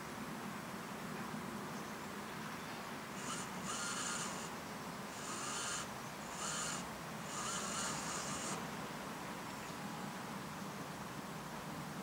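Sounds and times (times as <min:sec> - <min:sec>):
small electric motor whining: 0:03.2 - 0:08.7.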